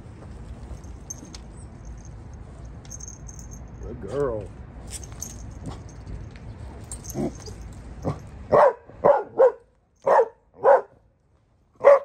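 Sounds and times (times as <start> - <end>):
dog barking sharply: 8.5 - 10.9, 11.8 - 12.0.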